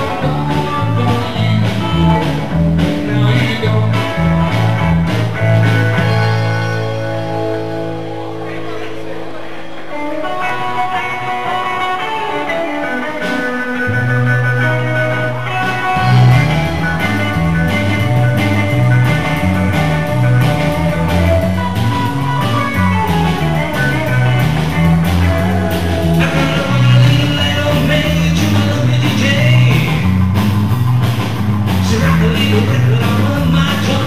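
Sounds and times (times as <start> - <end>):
drum kit beat: 0.0 - 8.7, 10.4 - 34.0
electric bass: 0.0 - 34.0
electric guitar: 0.0 - 34.0.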